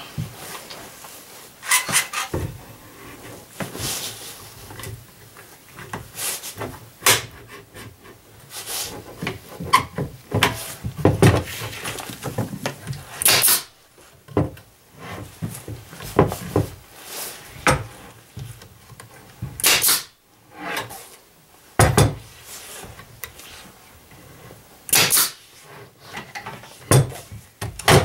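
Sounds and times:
knocks and clicks of hand work: 9.2 - 13.6, 21.8 - 22.2, 26.2 - 28.0.

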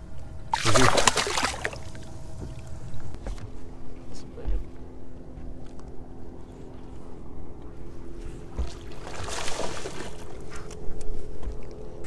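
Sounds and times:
electric trolling motor humming: 0.0 - 12.0
fish splashing at the surface: 0.6 - 2.0, 8.6 - 10.4.

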